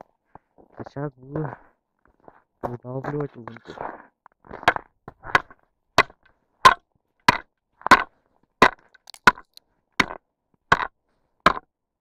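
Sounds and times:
ice chisel striking ice: 5.4 - 10.9, 11.5 - 11.7.

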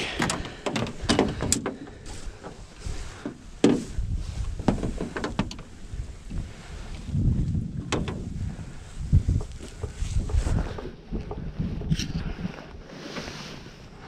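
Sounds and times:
knocks and thumps on boat: 0.1 - 5.8, 7.7 - 12.0
wind rumble on microphone: 0.2 - 14.0.

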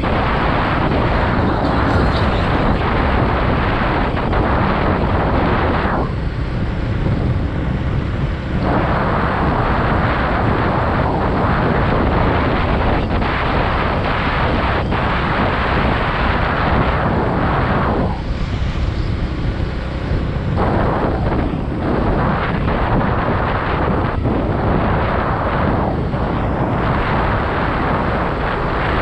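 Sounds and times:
tyre noise: 0.0 - 10.5
motorcycle engine: 0.0 - 29.0
wind rushing over microphone: 0.0 - 29.0.

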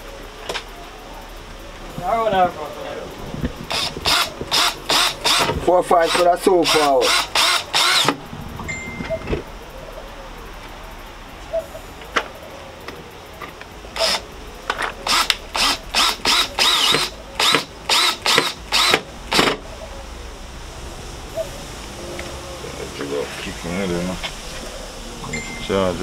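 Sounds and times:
cordless drill whirring bursts: 3.7 - 8.1, 14.0 - 14.2, 15.0 - 19.5.

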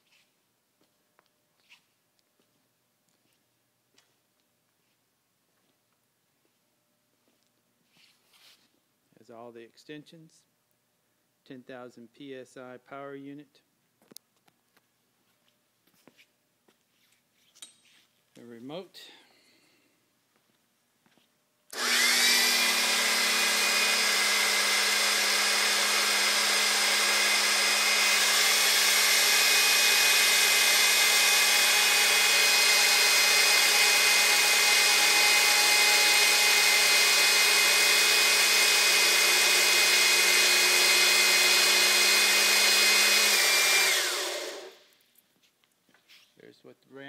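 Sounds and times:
hydraulic power unit running: 21.7 - 44.8.

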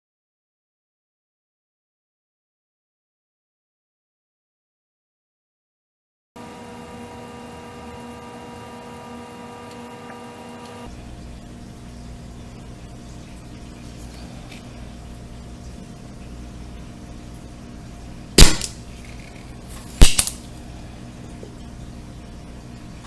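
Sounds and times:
low steady hum: 6.4 - 23.0
desoldering pump snapping: 18.4 - 20.5.

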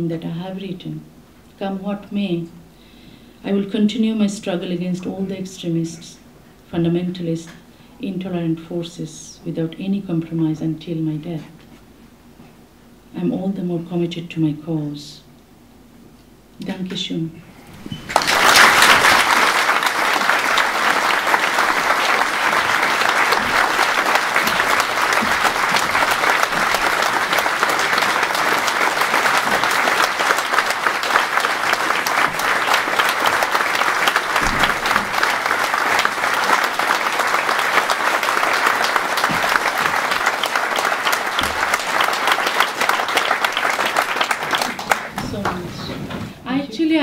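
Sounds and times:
audience applause: 17.7 - 45.7.

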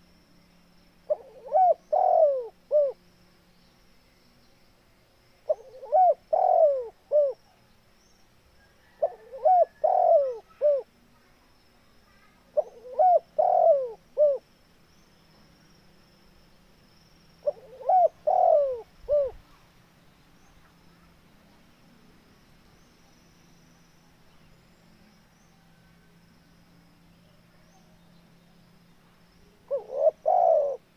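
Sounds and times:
dove cooing: 1.1 - 3.0, 5.5 - 7.4, 8.8 - 10.9, 12.6 - 14.4, 17.4 - 19.4, 29.6 - 30.9.

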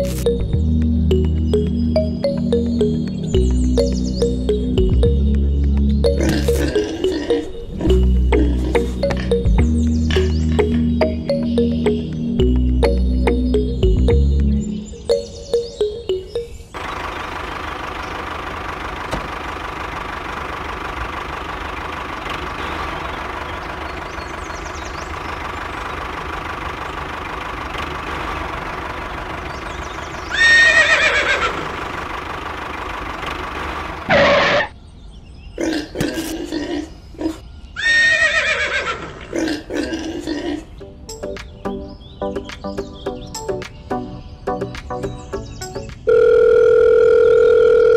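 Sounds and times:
horse neighing: 30.3 - 31.8, 34.1 - 34.7, 35.6 - 40.7.

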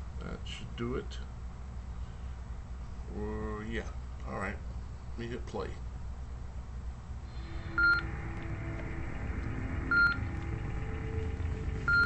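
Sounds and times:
low synthesized drone: 7.3 - 12.0
short electronic beeps: 7.7 - 8.2, 9.9 - 10.2.

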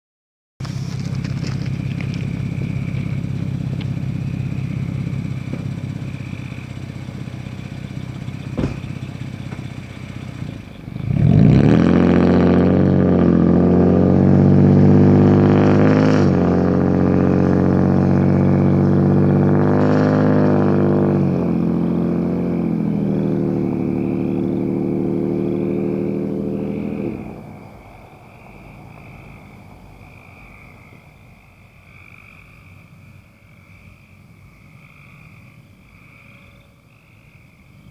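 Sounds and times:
pickup truck engine revving: 0.6 - 29.5.

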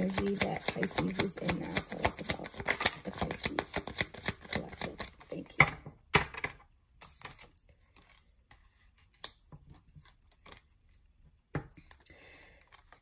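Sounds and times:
cards slapping and rustling: 0.0 - 5.8, 7.0 - 13.0.

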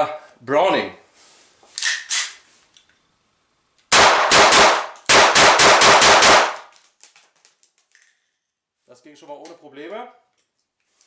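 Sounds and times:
blank pistol shots: 3.9 - 6.7.

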